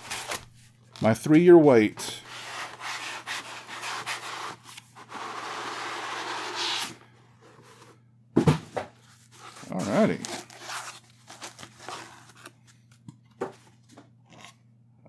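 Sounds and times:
cardboard box scraping: 2.3s - 8.0s.

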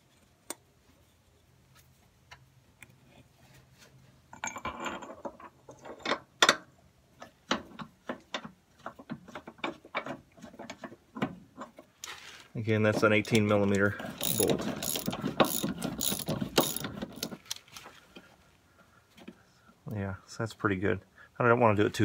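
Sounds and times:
metal bolt clicks and clinks: 14.2s - 17.4s.

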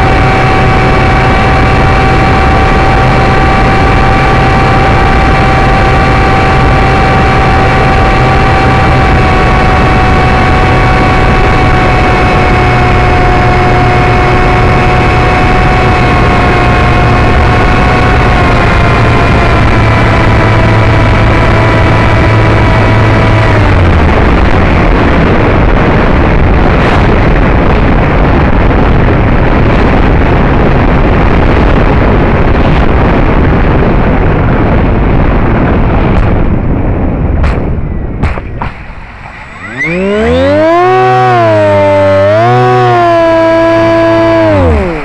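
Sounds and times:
electric motor whining: 0.0s - 25.7s, 39.1s - 45.0s.

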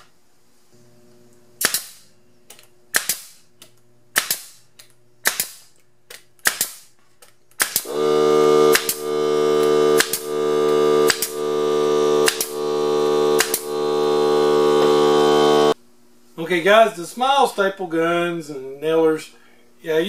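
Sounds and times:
nail gun firing into plywood: 1.6s - 2.1s, 2.9s - 3.4s, 4.1s - 4.6s, 5.2s - 5.8s, 6.4s - 6.9s, 7.6s - 8.0s, 8.7s - 9.0s, 10.0s - 10.3s, 11.0s - 11.4s, 12.2s - 12.6s, 13.4s - 13.7s
air compressor motor droning: 7.8s - 15.8s.

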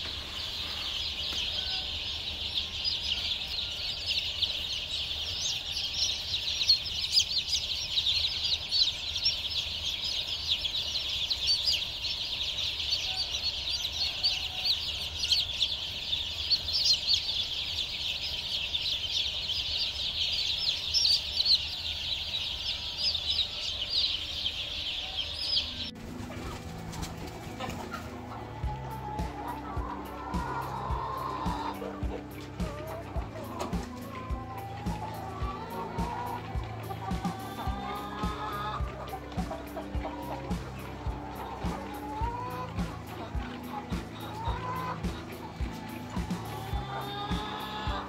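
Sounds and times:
chicks peeping: 0.0s - 48.0s.

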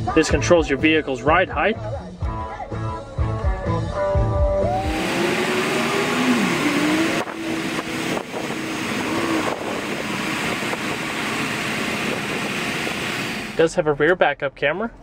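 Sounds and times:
air compressor hissing rush: 4.6s - 13.6s.

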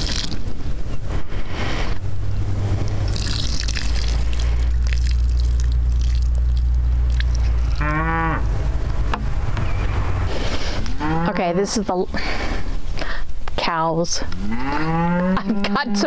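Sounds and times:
steady low rumble: 0.0s - 14.4s
cow mooing: 7.5s - 8.6s, 11.0s - 11.6s, 14.4s - 16.0s.

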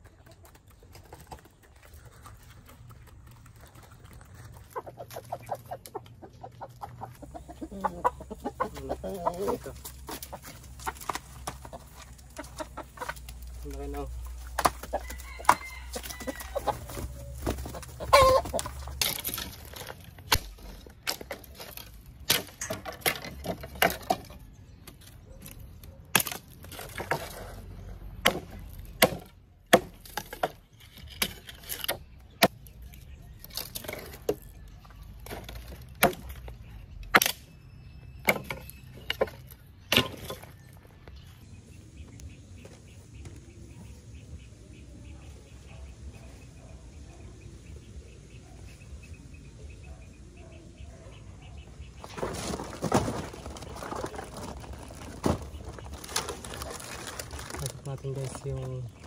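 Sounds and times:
chicken clucking: 0.0s - 19.0s
wood splitting cracks: 14.4s - 16.4s, 18.1s - 27.6s, 28.2s - 34.6s, 35.2s - 37.5s, 38.2s - 40.6s
machete chopping wood: 14.5s - 15.7s, 18.2s - 24.3s, 26.1s - 27.3s, 28.2s - 32.7s, 35.2s - 37.5s, 38.2s - 39.3s, 39.9s - 40.4s.

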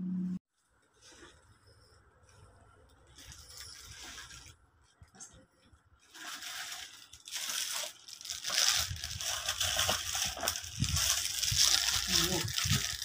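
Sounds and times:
paper bag and plastic rustling: 3.0s - 4.6s, 6.0s - 13.0s.

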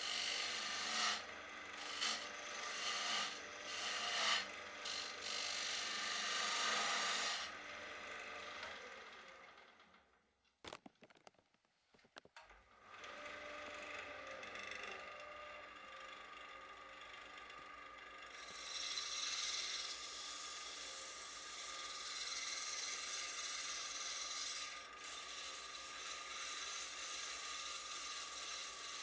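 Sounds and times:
sandpaper sanding spinning wood: 0.0s - 1.2s, 1.8s - 7.5s, 18.4s - 29.0s
wood lathe motor whine: 0.0s - 10.1s, 12.7s - 29.0s.

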